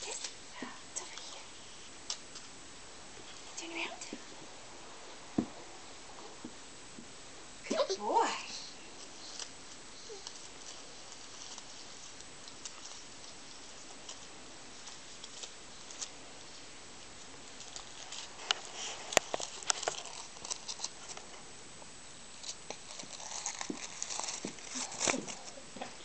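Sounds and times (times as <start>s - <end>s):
crinkly toy crackling: 7.7s - 16.6s, 17.2s - 21.4s, 22.4s - 26.0s.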